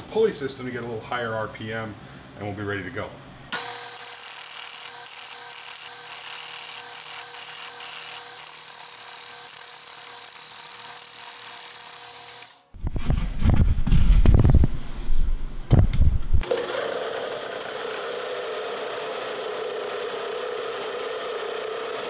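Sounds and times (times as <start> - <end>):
drill press motor hum: 3.5 - 12.7, 16.4 - 22.0.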